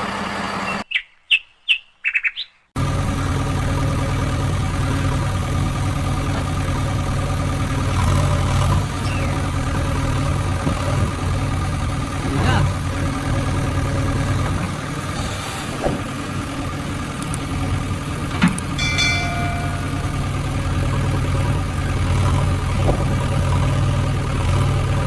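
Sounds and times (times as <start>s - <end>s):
engine idling: 2.8s - 25.0s
short bell-like ring: 18.8s - 20.7s.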